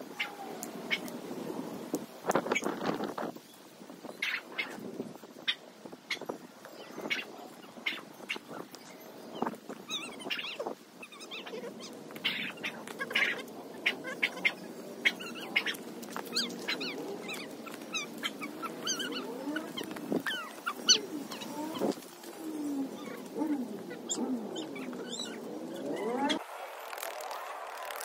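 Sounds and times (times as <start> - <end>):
birds chirping: 3.4 - 28.0
dry leaves rustling and crackling: 6.3 - 28.0.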